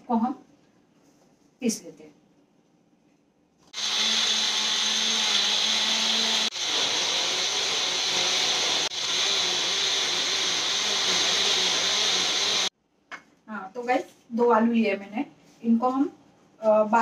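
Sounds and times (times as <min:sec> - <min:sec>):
electric blender running: 0:03.8 - 0:12.7.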